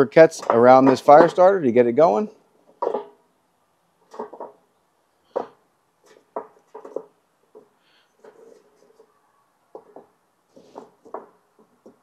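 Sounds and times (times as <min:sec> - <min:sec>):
charcoal lumps clacking and knocking: 0:00.0 - 0:01.8, 0:02.6 - 0:03.2, 0:04.0 - 0:04.6, 0:05.3 - 0:09.1, 0:09.7 - 0:12.0.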